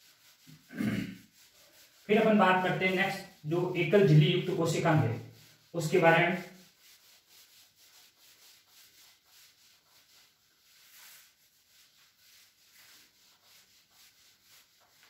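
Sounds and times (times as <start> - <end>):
eraser rubbing on whiteboard: 0.0 - 15.0.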